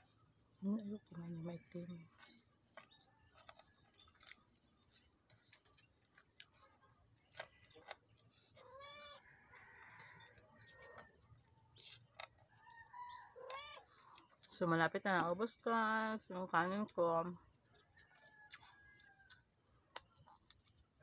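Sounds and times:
chewing sounds: 0:02.0 - 0:14.6, 0:17.4 - 0:21.0.

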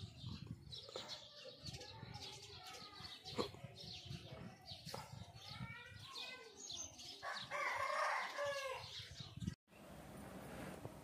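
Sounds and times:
rooster crowing: 0:07.4 - 0:08.8.

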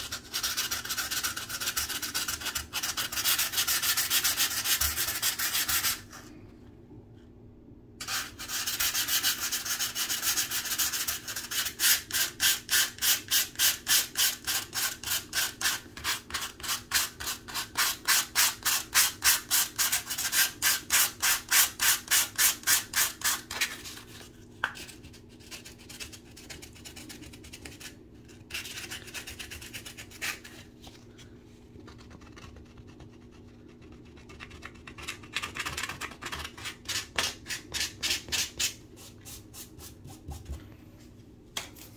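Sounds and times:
sandpaper rubbing on drywall: 0:00.0 - 0:06.2, 0:08.0 - 0:23.8.

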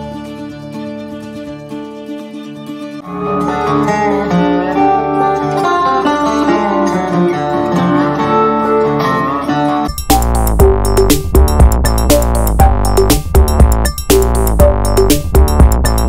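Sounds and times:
country music with acoustic guitar: 0:00.0 - 0:09.9.

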